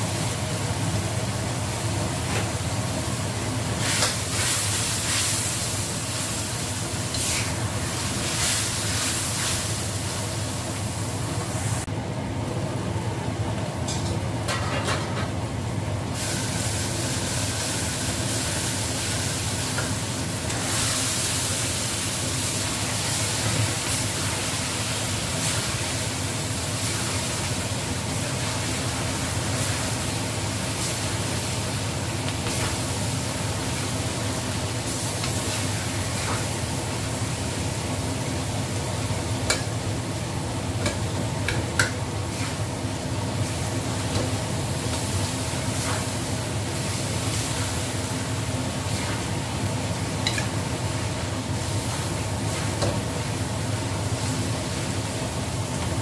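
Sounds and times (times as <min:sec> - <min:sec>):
food sizzling in a wok: 0:00.0 - 0:11.9, 0:16.1 - 0:56.0
spatula tapping metal: 0:39.5 - 0:39.7, 0:50.2 - 0:50.5.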